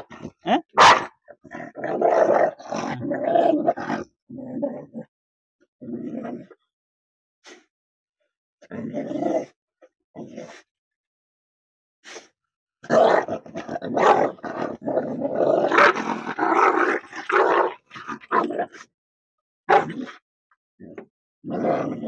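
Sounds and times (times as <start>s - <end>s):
dog growling and barking: 0.0s - 5.1s, 5.8s - 6.5s, 8.6s - 9.5s, 12.8s - 18.9s, 19.7s - 20.2s, 20.8s - 22.0s.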